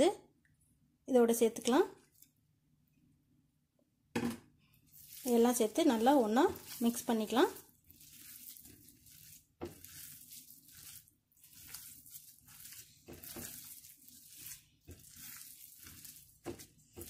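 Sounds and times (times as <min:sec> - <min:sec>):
hands squishing wet food: 0:04.6 - 0:17.0.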